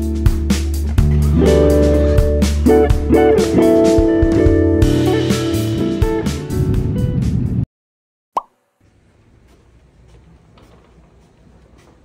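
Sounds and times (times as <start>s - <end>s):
guitar background music: 0.0s - 7.6s
short pop sound effect: 8.4s - 8.6s.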